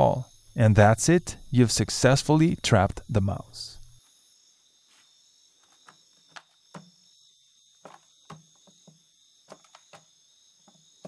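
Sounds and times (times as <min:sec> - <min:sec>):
crickets chirping: 0:00.0 - 0:11.0
mouse scrabbling in plastic bin: 0:07.8 - 0:10.1.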